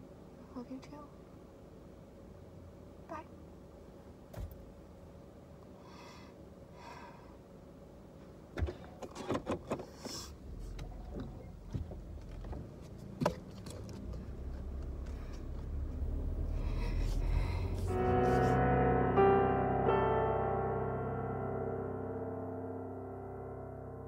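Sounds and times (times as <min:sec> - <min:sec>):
car engine rumble: 0:08.2 - 0:18.7
clicks and knocks in car: 0:08.5 - 0:10.0, 0:10.7 - 0:15.2.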